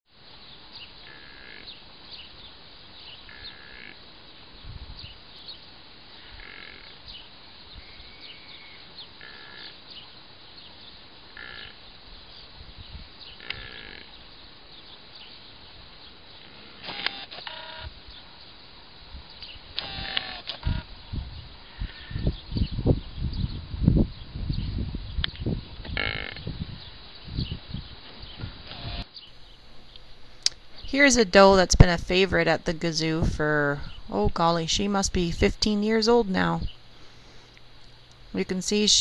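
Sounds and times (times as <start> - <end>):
rough animal call: 1.0 - 1.8, 3.1 - 4.0, 6.1 - 7.0, 8.0 - 9.8, 11.3 - 11.9, 13.3 - 14.2, 25.9 - 26.6.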